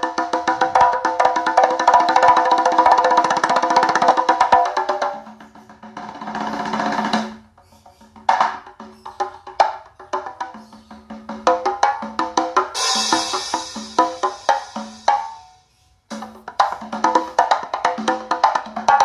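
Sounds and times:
percussive music with wood-block strikes: 0.0 - 19.0.

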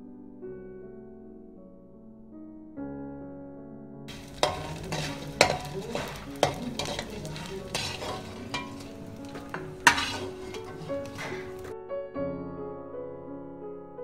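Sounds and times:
soft piano music: 0.0 - 14.0
metal skimmer scraping pan: 4.1 - 11.7
food sizzling in pan: 4.1 - 11.8.

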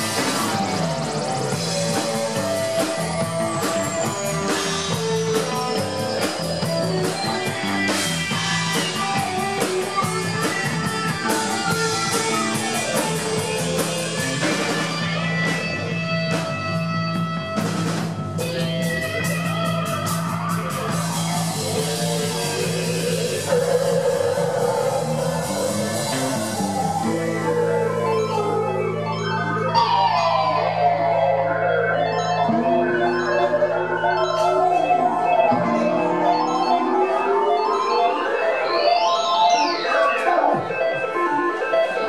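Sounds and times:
drum kit with cymbals: 0.0 - 28.6
electric guitar: 0.0 - 42.0
live rock band playing: 0.0 - 42.0.

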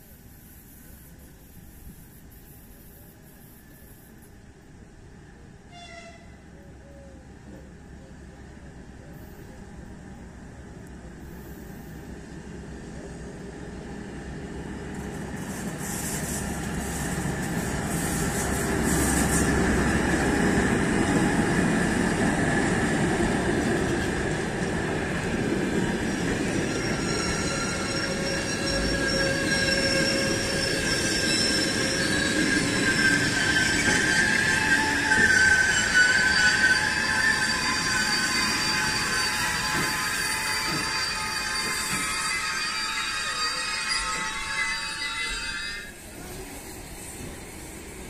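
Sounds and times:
train rumbling past: 0.0 - 48.0
wheel and brake squeal: 26.1 - 46.4.

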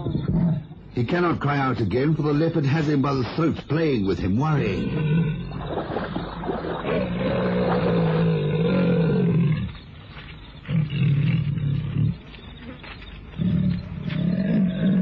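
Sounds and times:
leopard growling: 4.6 - 9.8, 10.6 - 12.4, 13.3 - 15.0.

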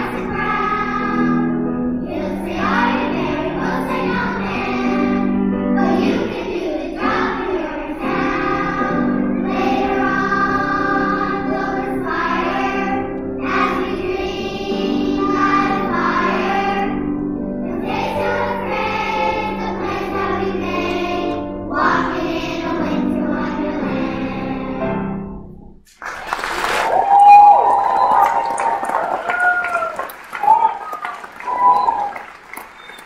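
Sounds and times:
children's choir singing: 0.0 - 25.1.

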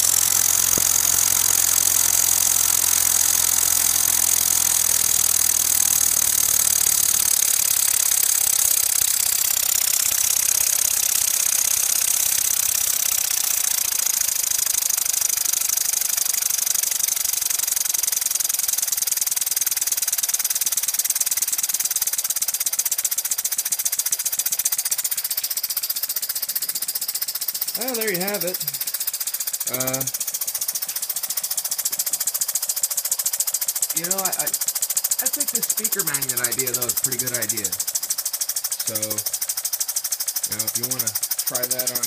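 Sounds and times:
model steam engine chattering: 0.0 - 42.0.

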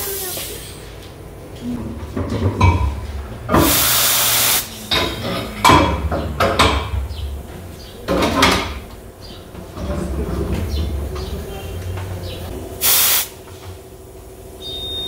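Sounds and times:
compressed air hissing: 0.0 - 0.9, 3.5 - 5.0, 12.8 - 13.4.

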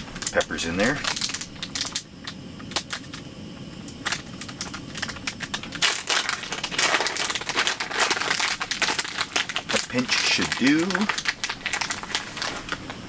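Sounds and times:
packet crinkling: 0.0 - 3.2, 3.9 - 13.0.

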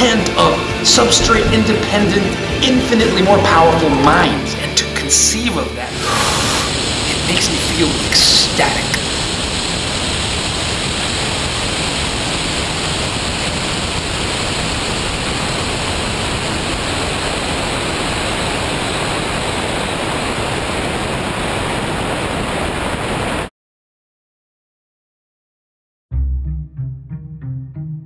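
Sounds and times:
loud rushing noise: 0.0 - 5.2, 5.8 - 13.6.

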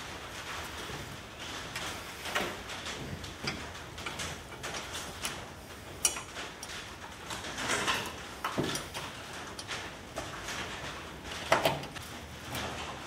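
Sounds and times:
clicks and knocks of metal tools: 3.4 - 13.0.

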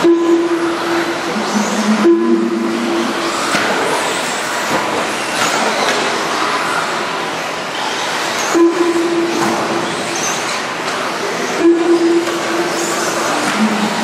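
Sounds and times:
steady horn-like tone: 0.0 - 3.3, 8.6 - 9.4, 11.6 - 12.8.

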